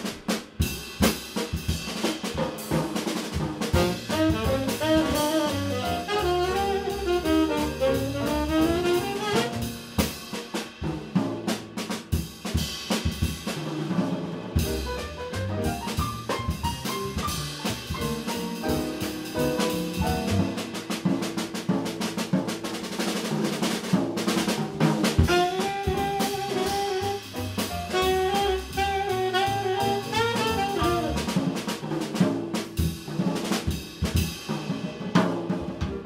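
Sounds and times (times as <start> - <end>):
drum kit break: 0.0 - 36.0
jazz band playing: 0.0 - 36.0
saxophone: 3.8 - 9.7, 25.3 - 31.4.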